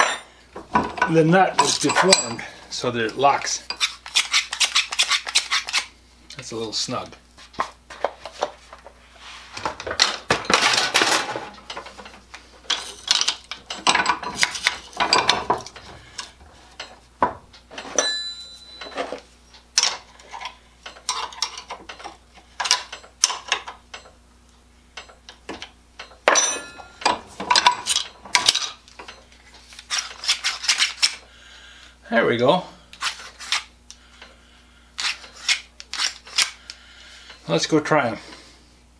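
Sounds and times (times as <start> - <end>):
wrench clinking and scraping metal: 0.0 - 2.6, 3.2 - 5.9, 10.0 - 17.0, 17.7 - 24.2, 25.0 - 31.2
metallic rings: 1.1 - 2.6, 17.8 - 19.2, 26.0 - 29.3
shear blades opening and shutting: 3.7 - 5.9, 35.0 - 36.7.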